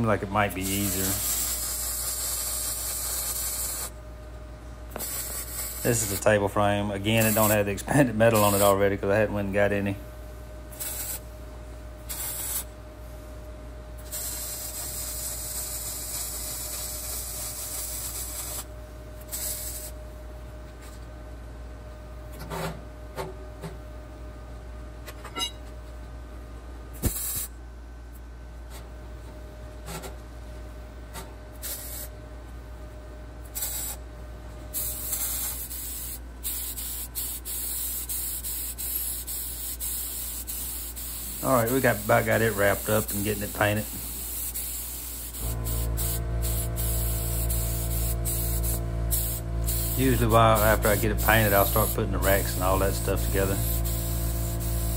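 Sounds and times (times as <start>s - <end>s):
welder arc hissing and crackling: 0.4s - 4.0s, 4.9s - 6.4s, 7.0s - 8.8s, 10.8s - 11.3s, 12.1s - 12.7s, 14.0s - 20.0s, 27.0s - 27.5s, 31.6s - 32.1s, 33.5s - 34.0s, 34.8s - 54.9s
paint spray gun hissing: 0.6s - 3.9s, 5.0s - 6.0s, 10.8s - 11.2s, 12.1s - 12.7s, 14.1s - 18.6s, 27.0s - 27.5s, 34.8s - 54.9s.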